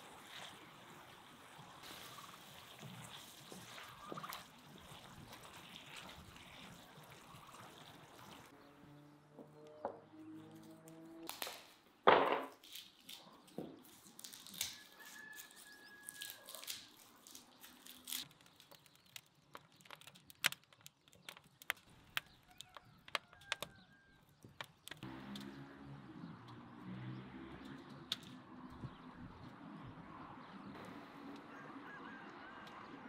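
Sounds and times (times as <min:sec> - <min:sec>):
wood fire crackling and popping: 0:16.6 - 0:25.1.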